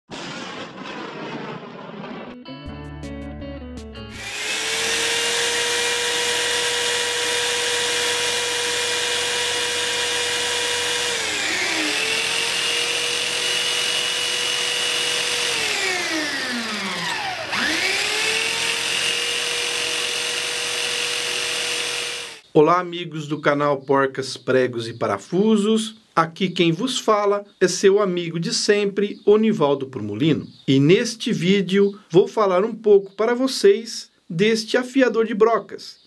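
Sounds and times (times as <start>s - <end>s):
electric drill motor whine: 4.1s - 22.4s.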